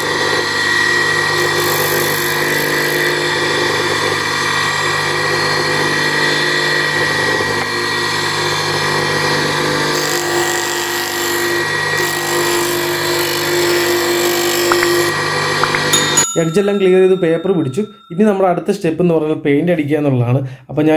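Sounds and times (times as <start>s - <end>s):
bench grinder grinding: 0.0s - 16.1s.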